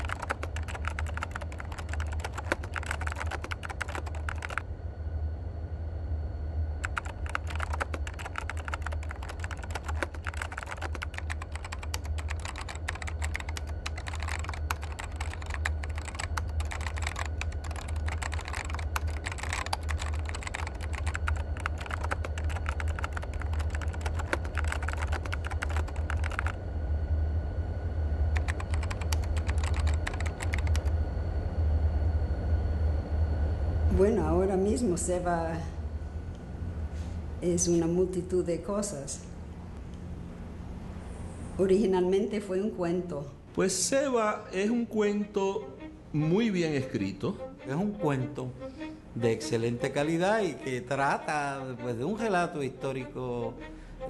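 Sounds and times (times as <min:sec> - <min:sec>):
rapid keyboard typing: 0:00.0 - 0:04.6, 0:06.8 - 0:26.6, 0:28.3 - 0:30.9
steady low hum: 0:00.0 - 0:54.0.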